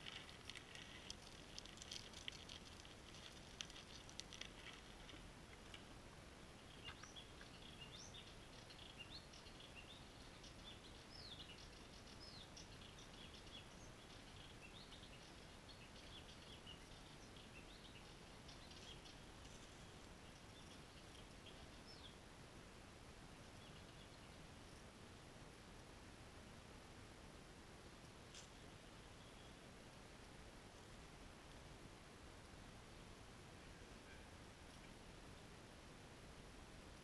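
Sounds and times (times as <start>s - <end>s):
birds chirping: 6.5s - 22.2s.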